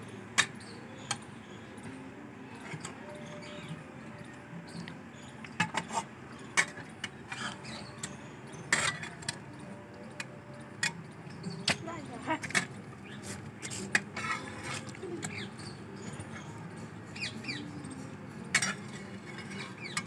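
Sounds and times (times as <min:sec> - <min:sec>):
metal spatula scraping a pan: 0:08.6 - 0:09.2, 0:13.2 - 0:15.4, 0:18.5 - 0:20.0.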